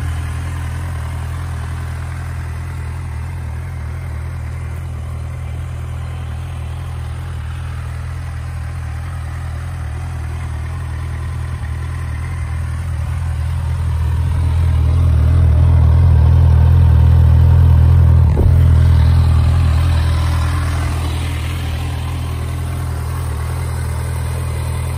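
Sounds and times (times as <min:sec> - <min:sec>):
motorcycle engine idling: 0:00.0 - 0:24.9
brief knock: 0:18.3 - 0:18.8.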